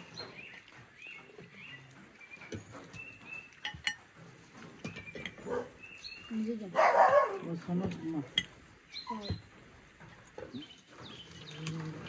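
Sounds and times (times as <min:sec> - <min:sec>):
birds chirping: 0:00.0 - 0:12.0
cutlery clinking on plates: 0:03.6 - 0:04.2.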